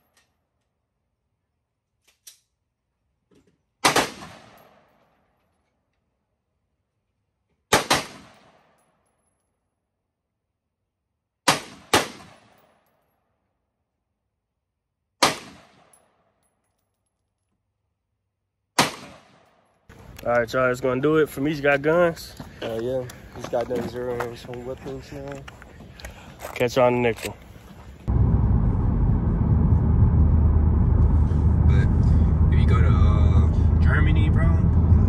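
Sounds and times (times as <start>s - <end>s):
rifle shots echoing: 3.8s - 4.9s, 7.7s - 8.7s, 11.4s - 12.7s, 15.2s - 16.0s, 18.8s - 19.6s.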